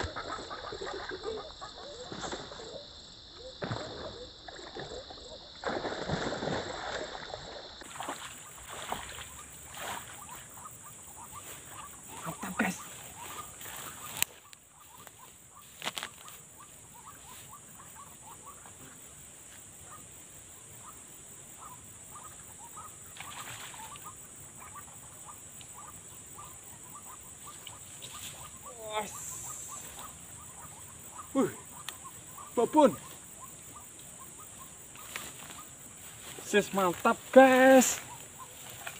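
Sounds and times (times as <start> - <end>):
steady high hiss: 27.9 - 30.4.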